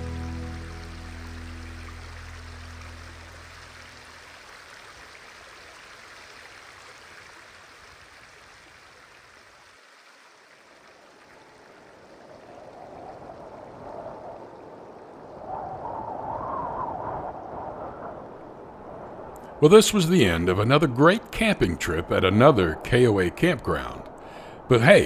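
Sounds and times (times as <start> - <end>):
river water running over rocks: 0.0 - 12.6.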